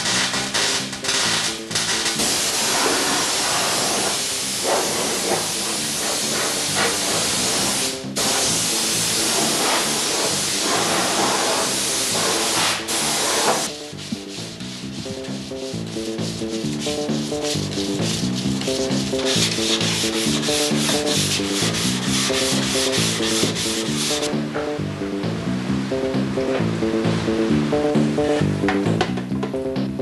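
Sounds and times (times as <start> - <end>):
background music: 0.0 - 30.0
spray gun hissing: 2.2 - 13.7, 19.2 - 24.3
sanding: 2.2 - 24.3.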